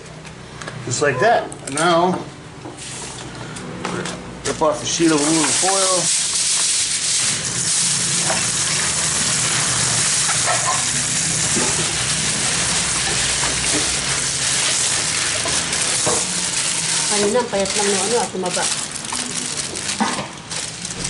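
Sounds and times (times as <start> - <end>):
aluminium foil crackling: 4.9 - 21.0.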